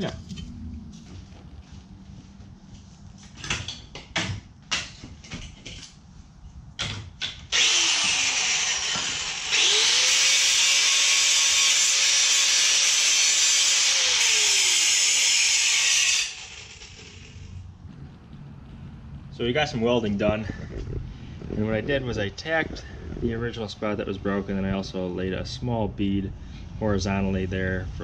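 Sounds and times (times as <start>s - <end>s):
angle grinder grinding steel: 7.5s - 17.5s.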